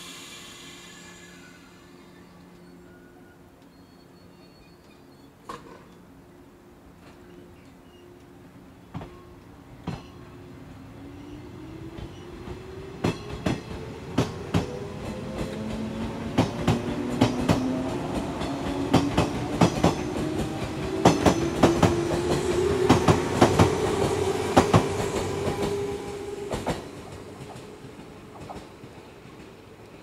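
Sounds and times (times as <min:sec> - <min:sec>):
wheels clacking over rail joints: 0:11.9 - 0:30.0.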